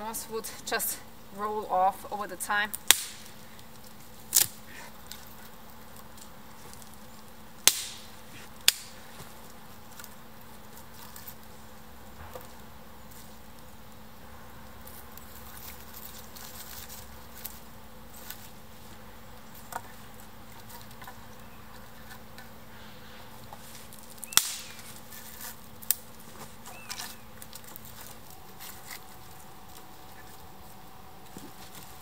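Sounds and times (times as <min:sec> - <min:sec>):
faint steady buzz: 0:00.0 - 0:32.0
sharp cracks of branches: 0:02.7 - 0:05.3, 0:07.6 - 0:09.3, 0:23.7 - 0:29.1
twigs clicking and knocking: 0:02.7 - 0:13.8, 0:14.6 - 0:22.6, 0:23.4 - 0:32.0.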